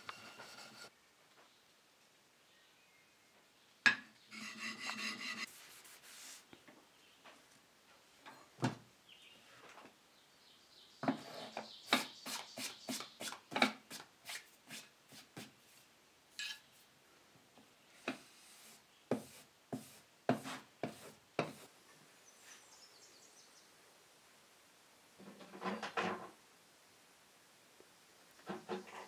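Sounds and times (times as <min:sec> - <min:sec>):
chisel rubbing on sharpening stone: 0:00.0 - 0:00.9, 0:04.3 - 0:05.5.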